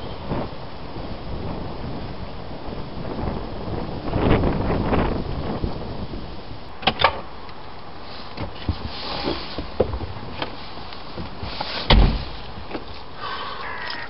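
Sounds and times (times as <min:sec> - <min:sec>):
car door shutting with heavy thud: 0:11.2 - 0:12.9.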